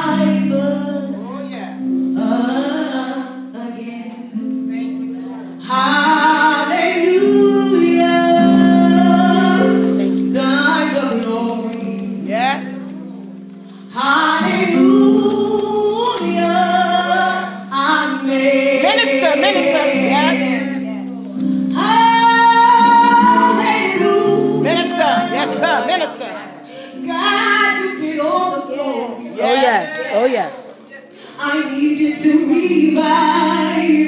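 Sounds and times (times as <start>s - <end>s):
woman singing gospel: 0.0s - 4.7s, 5.6s - 13.0s, 13.9s - 34.0s
sustained instrumental chords: 6.7s - 28.3s.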